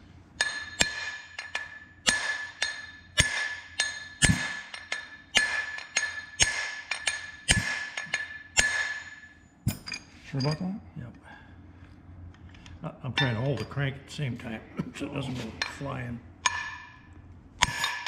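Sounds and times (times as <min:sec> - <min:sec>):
hammer striking metal: 0:00.4 - 0:10.6, 0:16.4 - 0:18.0.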